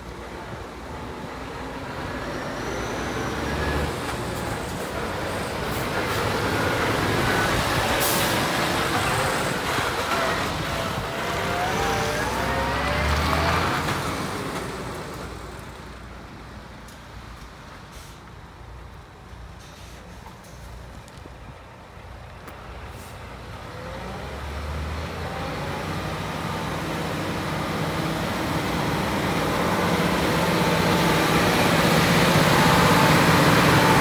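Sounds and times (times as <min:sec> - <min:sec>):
diesel truck driving past: 0:00.2 - 0:16.6, 0:22.6 - 0:34.0
brief air hiss: 0:17.9 - 0:18.3, 0:19.6 - 0:20.8.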